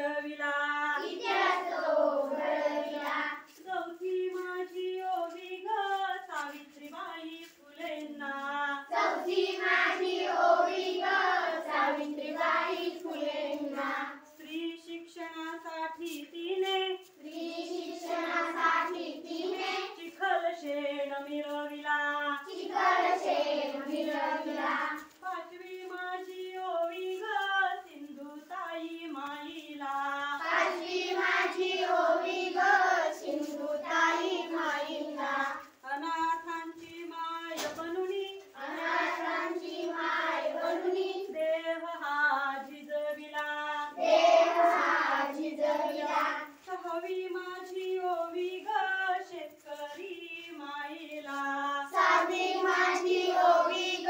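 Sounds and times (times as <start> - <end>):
children singing in unison: 0.8 - 3.6, 8.8 - 14.2, 17.2 - 20.9, 22.2 - 25.2, 30.2 - 35.7, 38.4 - 41.5, 43.7 - 46.6, 51.3 - 54.0.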